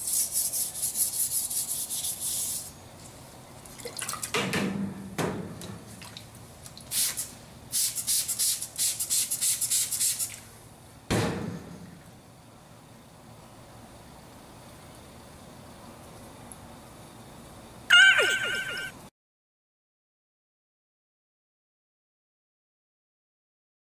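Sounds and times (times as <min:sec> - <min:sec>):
spray bottle hissing sprays: 0:00.0 - 0:02.8, 0:06.9 - 0:10.5
liquid splashing: 0:03.6 - 0:04.4.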